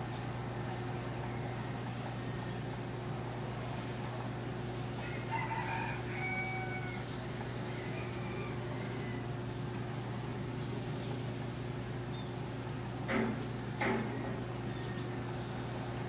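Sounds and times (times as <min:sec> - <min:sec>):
steady low hum: 0:00.0 - 0:16.0
rooster crowing: 0:01.2 - 0:02.6, 0:05.0 - 0:09.4.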